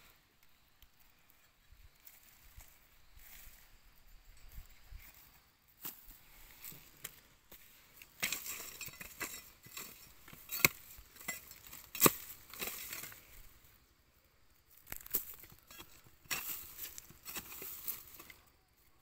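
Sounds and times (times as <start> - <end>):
dry grass and soil rustling: 0.0 - 19.0.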